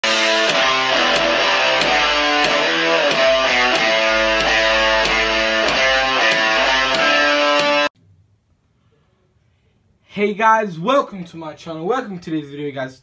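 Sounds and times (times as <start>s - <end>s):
intro music with held chords: 0.0s - 7.9s.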